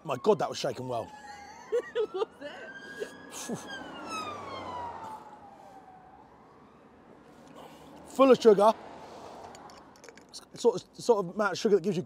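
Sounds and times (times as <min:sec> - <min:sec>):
emergency vehicle siren wailing: 0:00.0 - 0:08.7.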